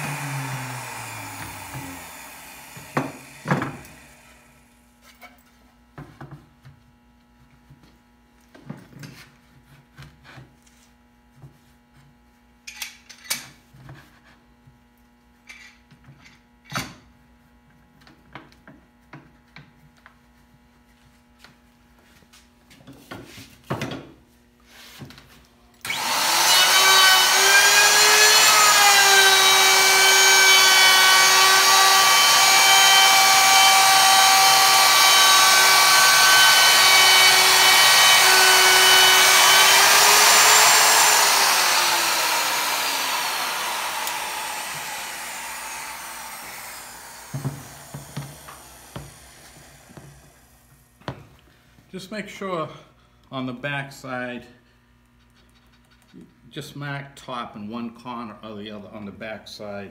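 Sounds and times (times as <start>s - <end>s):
electric router whining: 0.0s - 4.6s, 25.9s - 50.7s.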